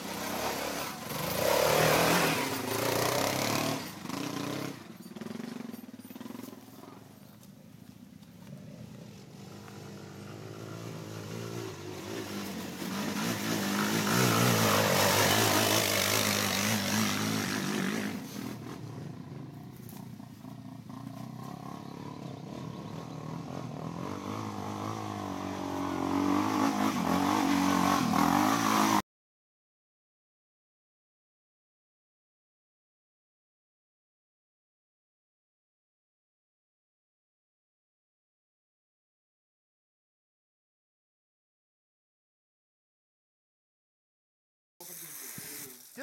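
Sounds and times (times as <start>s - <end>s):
quad engines revving: 0.0s - 29.0s.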